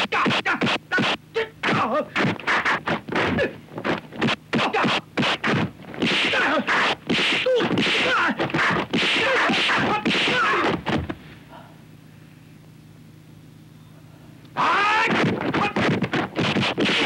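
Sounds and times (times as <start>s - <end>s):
punch and kick impacts: 3.0s - 11.2s, 15.1s - 17.0s
fighters shouting and grunting: 4.5s - 5.0s, 6.1s - 10.9s, 14.6s - 16.0s.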